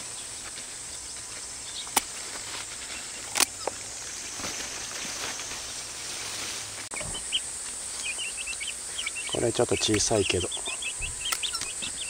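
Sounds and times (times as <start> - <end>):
rustling of leaves: 0.0 - 12.0
insect chirring: 6.9 - 12.0.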